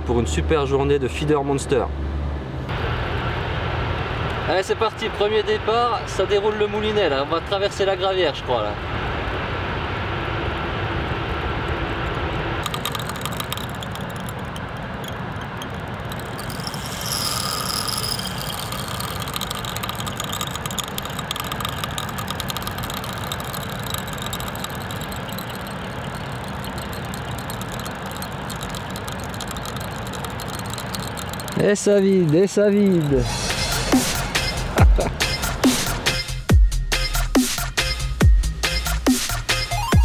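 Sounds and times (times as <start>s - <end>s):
fishing reel ticking: 12.0s - 38.1s
steady tone: 12.6s - 35.9s.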